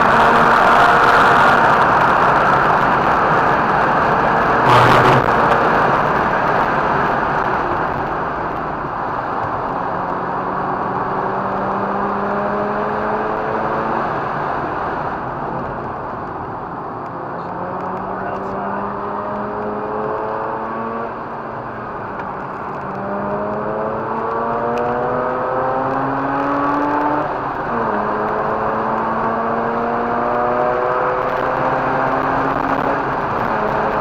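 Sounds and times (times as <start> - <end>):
rotary engine running hard: 4.5 - 6.2
short loud noise: 4.6 - 5.7.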